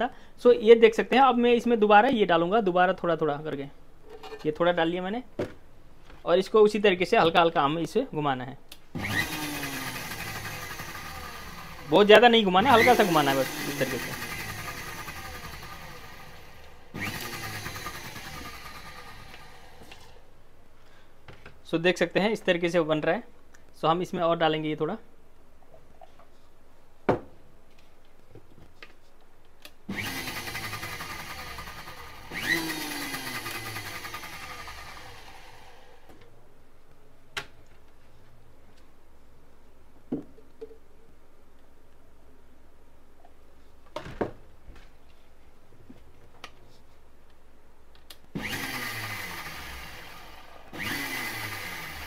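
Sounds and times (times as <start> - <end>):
mixer grinder motor whirring: 9.0 - 20.2, 29.9 - 36.1, 48.4 - 52.0.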